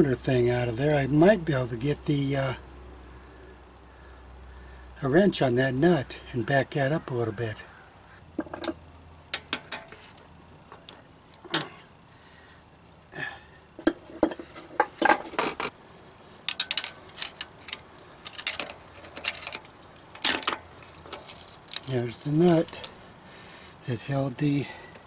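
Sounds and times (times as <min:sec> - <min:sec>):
tools clinking on metal: 0:16.5 - 0:23.2.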